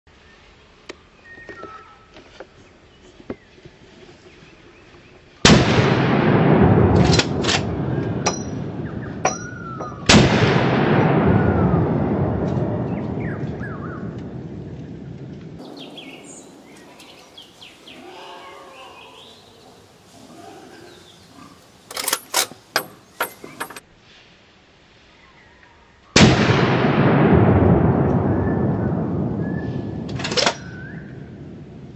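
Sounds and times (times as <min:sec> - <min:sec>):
rifle shot: 0:05.4 - 0:14.4, 0:26.2 - 0:31.2
gunshots echoing: 0:05.4 - 0:17.9, 0:26.2 - 0:31.7
noise burst: 0:05.6 - 0:23.8
bird chirping: 0:08.0 - 0:10.1, 0:14.9 - 0:23.8, 0:30.6 - 0:31.3.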